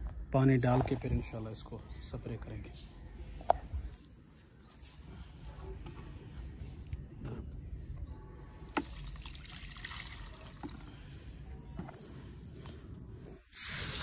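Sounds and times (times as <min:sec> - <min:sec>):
water pouring and trickling: 0:08.7 - 0:11.2.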